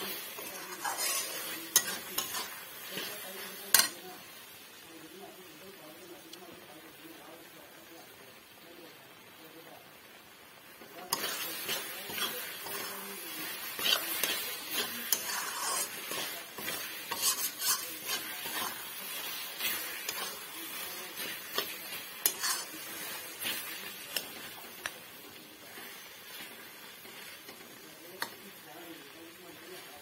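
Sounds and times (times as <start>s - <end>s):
metal spatula scraping a pan: 0.0s - 4.0s, 11.0s - 27.6s
pickle sizzling: 0.0s - 30.0s.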